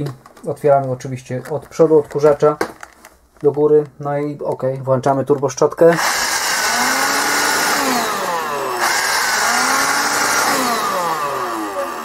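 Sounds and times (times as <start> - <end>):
stick vacuum whirring: 5.9 - 12.0.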